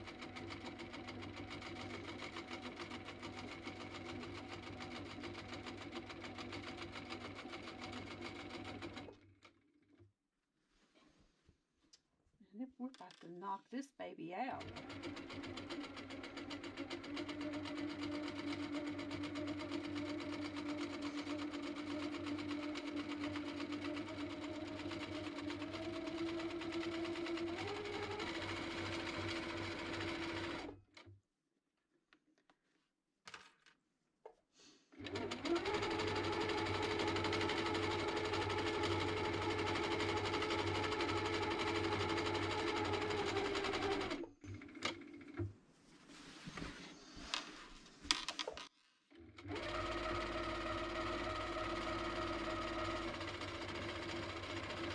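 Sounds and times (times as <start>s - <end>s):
sewing machine stitching: 0.0s - 10.0s, 14.6s - 31.1s, 35.0s - 45.5s, 49.1s - 54.9s.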